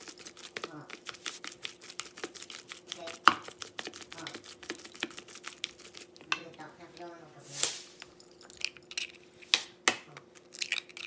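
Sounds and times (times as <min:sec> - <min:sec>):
utensil scraping in steel bowl: 0:00.0 - 0:06.6, 0:07.4 - 0:08.0.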